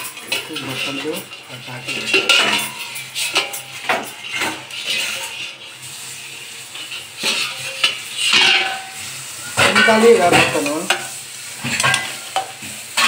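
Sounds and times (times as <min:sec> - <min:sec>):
steel plate clanking on metal pan: 0:00.0 - 0:05.6, 0:06.8 - 0:13.0.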